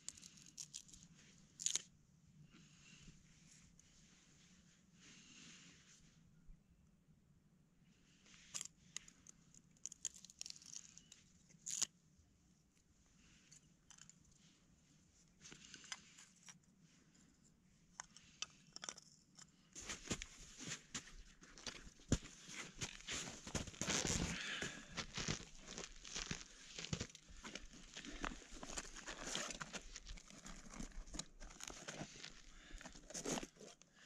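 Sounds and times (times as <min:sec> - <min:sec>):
rustling and crackling material: 0:19.8 - 0:34.0.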